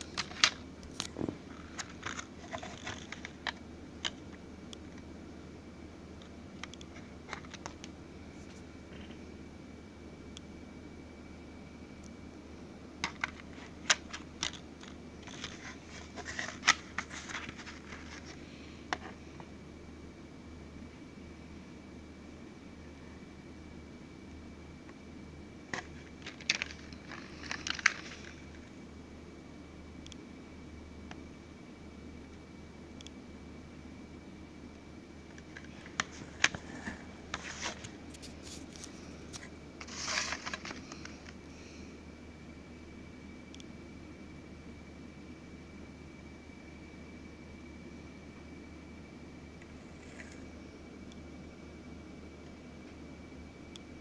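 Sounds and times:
paper booklet rustle: 0.1s - 3.6s, 13.0s - 18.4s, 25.7s - 28.5s, 35.4s - 41.4s.

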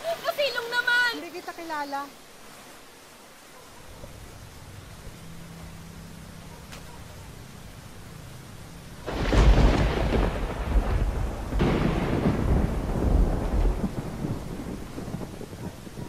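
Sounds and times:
rain: 0.0s - 16.0s
thunder rumbling: 9.0s - 16.0s.

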